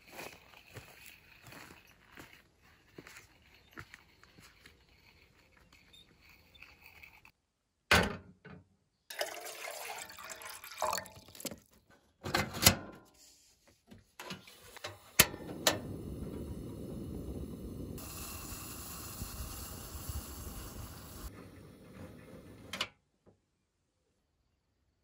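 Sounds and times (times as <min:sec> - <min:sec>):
liquid pouring and sloshing: 0:09.1 - 0:11.8.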